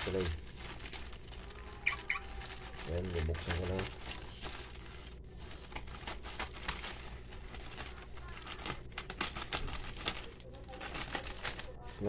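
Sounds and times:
plastic bag crinkling: 0:00.0 - 0:12.0
scissors cutting plastic: 0:05.6 - 0:11.8.

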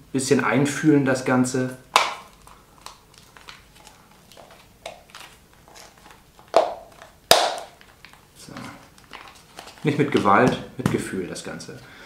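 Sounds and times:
rubbery rustling: 0:01.9 - 0:10.6.

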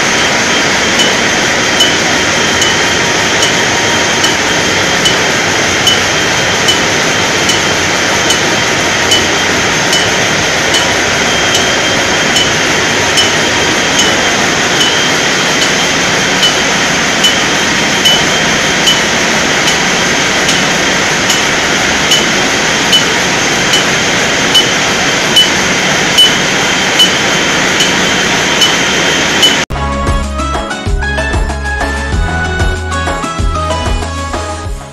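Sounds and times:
valve lapping machine whirring: 0:00.0 - 0:29.7.

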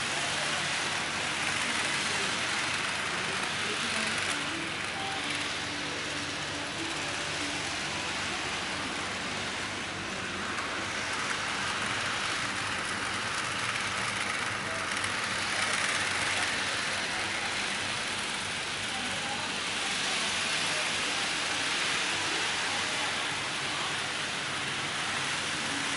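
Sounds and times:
model train wheels rattling: 0:00.0 - 0:25.9.

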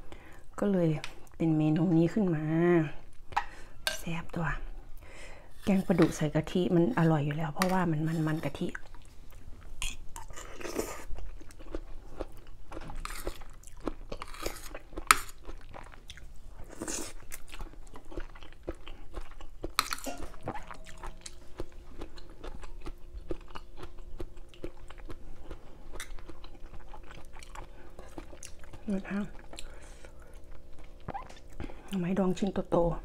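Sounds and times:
close chewing and crunching: 0:06.9 - 0:32.2.

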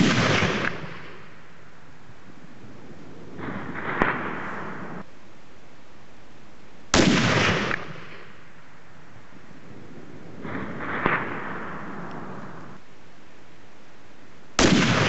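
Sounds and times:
distant bullet impact crack: 0:00.0 - 0:01.4, 0:07.0 - 0:08.5, 0:14.6 - 0:15.0
rifle shot: 0:00.0 - 0:01.4, 0:03.4 - 0:05.0, 0:06.9 - 0:08.5, 0:10.4 - 0:12.0, 0:14.6 - 0:15.0
faint rumble: 0:00.6 - 0:06.9, 0:07.6 - 0:14.9.

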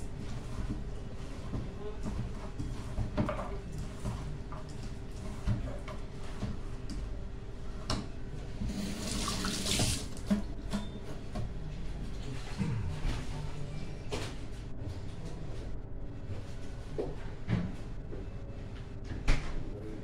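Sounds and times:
tap water hissing into sink: 0:08.7 - 0:10.3.

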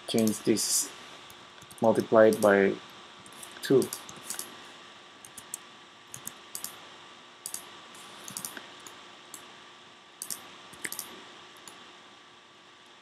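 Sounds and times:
faint steady hiss: 0:00.0 - 0:13.0
keyboard and mouse clicks: 0:00.2 - 0:00.4, 0:01.6 - 0:02.5, 0:03.3 - 0:04.5, 0:05.2 - 0:06.8, 0:07.4 - 0:09.5, 0:10.2 - 0:11.8.

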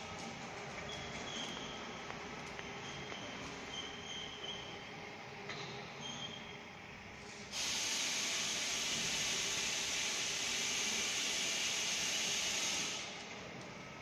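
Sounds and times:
workshop background noise: 0:00.0 - 0:06.3
steady hiss of escaping air: 0:07.3 - 0:13.2.

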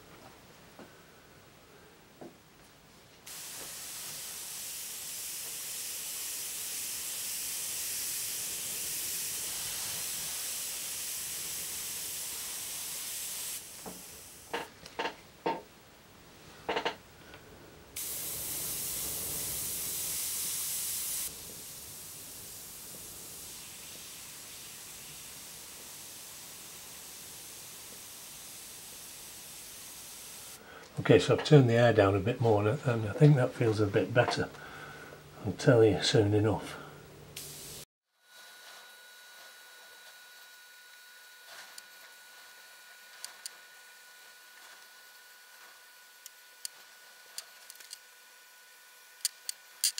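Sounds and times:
airbrush hissing: 0:03.3 - 0:14.7, 0:18.0 - 0:30.6, 0:36.8 - 0:37.9.

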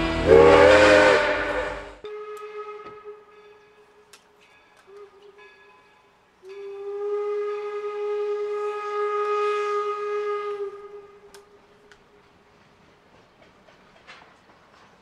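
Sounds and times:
steam locomotive whistle blast: 0:00.0 - 0:03.6, 0:04.8 - 0:05.6, 0:06.4 - 0:11.6.

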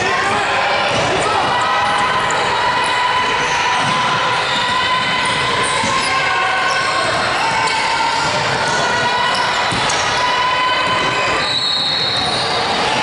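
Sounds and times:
voices: 0:00.0 - 0:13.0
shoe squeaks: 0:11.3 - 0:12.7.

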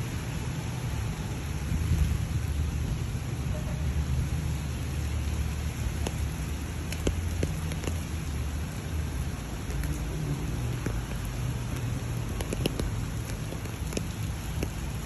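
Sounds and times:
rain on wet pavement: 0:00.0 - 0:15.0
sharp drop ticks: 0:06.0 - 0:08.1, 0:10.8 - 0:15.0.

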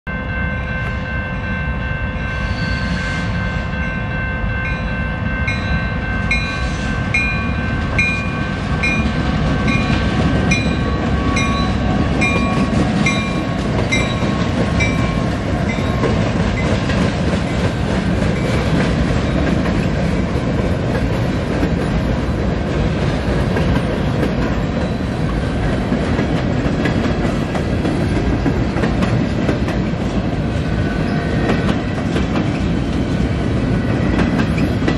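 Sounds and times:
crossing bells ringing: 0:00.0 - 0:20.8
locomotive rumble: 0:03.3 - 0:34.9.

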